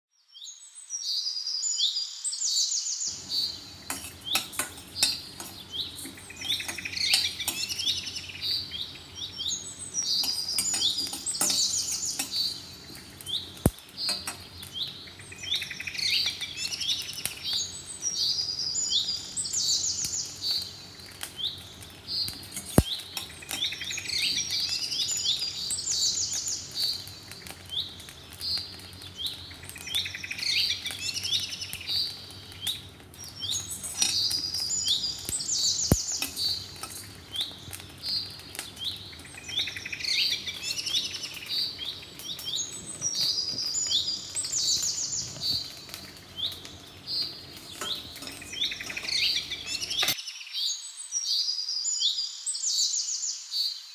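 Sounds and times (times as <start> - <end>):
songbirds chirping and trilling: 0.2 - 53.9
spatula scraping a metal wok: 3.8 - 7.8, 10.2 - 12.4, 33.5 - 34.4.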